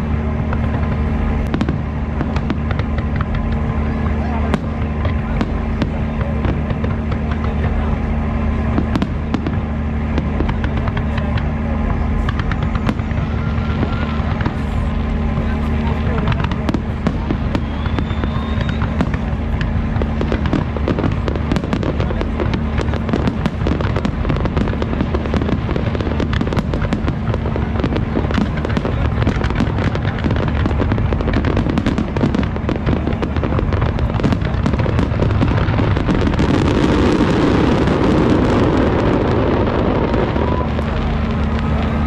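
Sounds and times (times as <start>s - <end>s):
fireworks bursts and crackling bangs: 0.0s - 42.0s.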